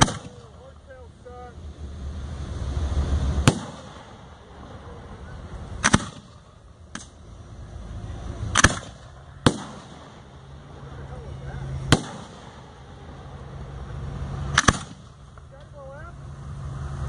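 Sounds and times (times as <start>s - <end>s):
firework shells bursting: 0.0s - 0.6s, 3.4s - 4.7s, 5.7s - 7.2s, 8.5s - 10.4s, 11.9s - 12.9s, 14.4s - 15.4s.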